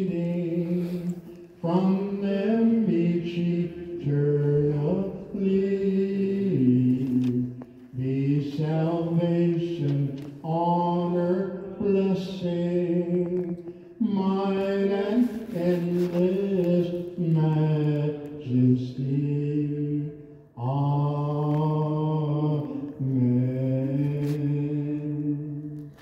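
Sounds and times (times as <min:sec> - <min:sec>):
person singing a chant: 0:00.0 - 0:26.0.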